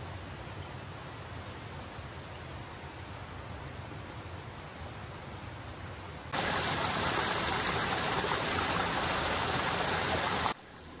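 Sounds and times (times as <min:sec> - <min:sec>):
faint steady hiss: 0:00.0 - 0:11.0
stream running over rocks: 0:06.3 - 0:11.0.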